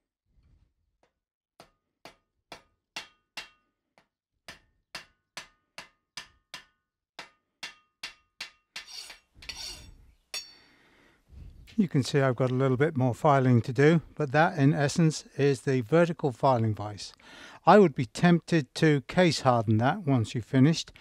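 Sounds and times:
hammer ringing on hot steel: 9.5 - 10.6.

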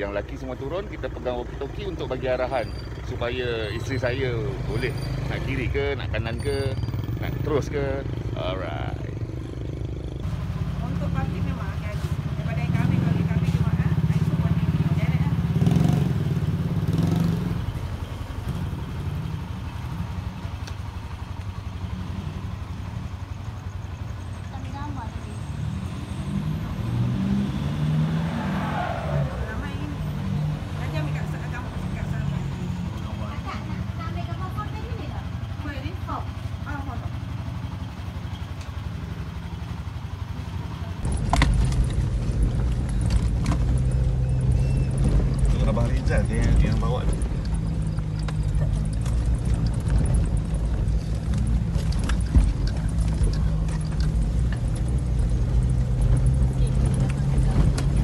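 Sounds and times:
car engine pulsing: 0.0 - 58.0
sharp knocks and rattles: 41.0 - 58.0.

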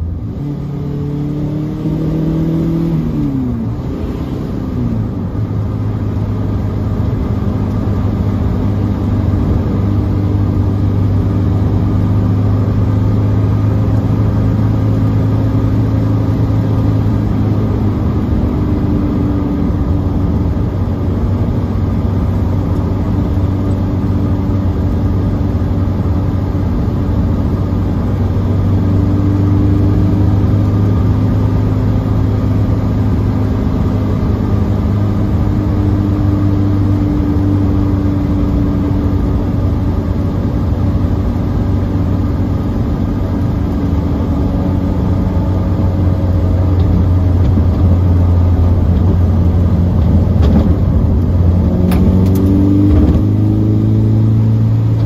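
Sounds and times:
car engine heard from cabin: 0.0 - 55.0
tyre and road noise: 0.0 - 55.0.

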